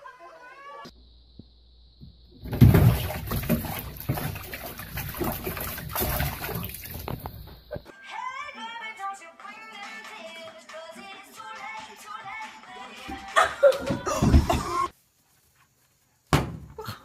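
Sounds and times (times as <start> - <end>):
cat splashing in bathwater: 2.4 - 7.5.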